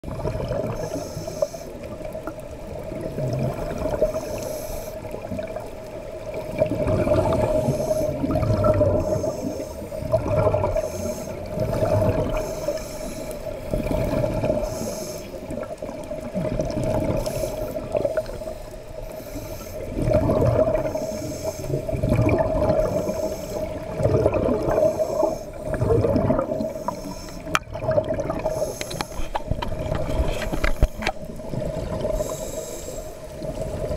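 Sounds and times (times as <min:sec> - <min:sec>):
bubbles gurgling underwater: 0:00.0 - 0:01.1, 0:01.8 - 0:12.8, 0:13.4 - 0:18.5, 0:19.8 - 0:32.4, 0:33.3 - 0:33.9
scuba regulator breathing: 0:00.6 - 0:02.0, 0:03.9 - 0:05.2, 0:07.0 - 0:15.7, 0:17.0 - 0:24.0, 0:24.6 - 0:27.6, 0:28.4 - 0:31.4, 0:32.0 - 0:33.4.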